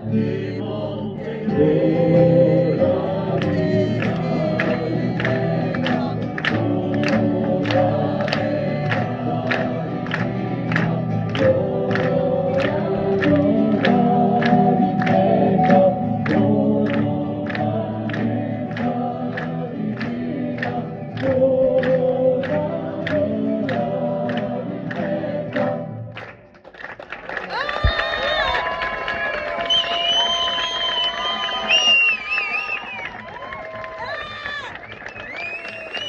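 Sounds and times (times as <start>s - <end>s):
choir singing: 0.0s - 26.2s
acoustic guitar: 0.0s - 26.6s
hand-clapping in time: 1.6s - 36.0s.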